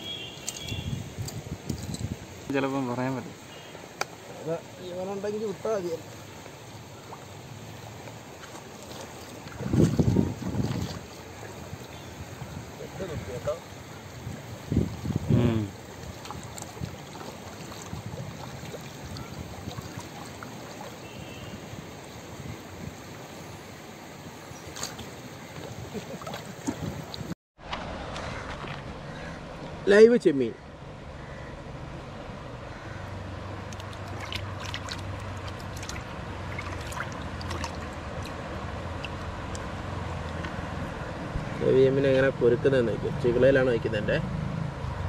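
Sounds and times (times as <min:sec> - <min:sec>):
water running and trickling: 0:00.1 - 0:27.4, 0:33.4 - 0:40.6
small splashes and drips: 0:05.9 - 0:12.5, 0:13.4 - 0:22.2, 0:24.5 - 0:27.3, 0:33.5 - 0:40.6.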